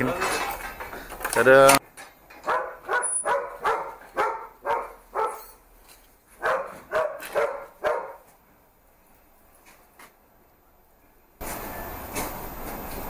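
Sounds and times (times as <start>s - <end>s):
dog barking: 2.4s - 5.6s, 6.4s - 8.3s.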